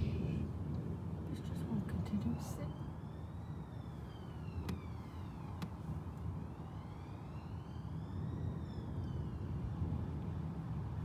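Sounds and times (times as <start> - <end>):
siren wailing: 2.3 - 5.6, 6.3 - 10.5.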